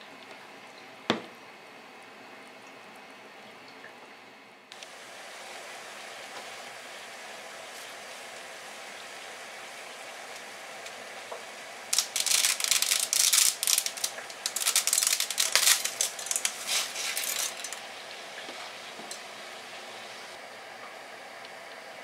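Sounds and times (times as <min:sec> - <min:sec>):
water boiling: 0:00.0 - 0:22.0
dry spaghetti snapping: 0:11.9 - 0:17.8.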